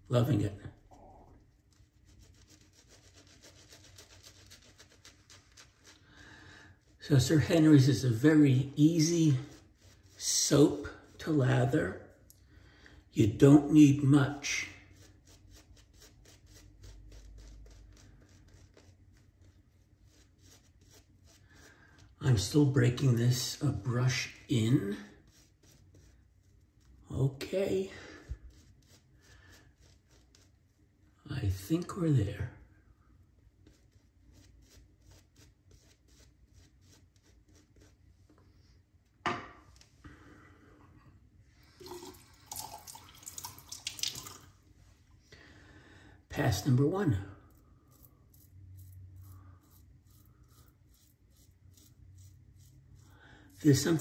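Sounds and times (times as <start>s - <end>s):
shaving brush scratching lather: 0.1s - 6.1s, 6.7s - 12.2s, 13.2s - 32.4s, 33.4s - 38.5s, 46.4s - 54.0s
knock: 39.2s - 39.7s
tap running at sink: 41.8s - 44.4s.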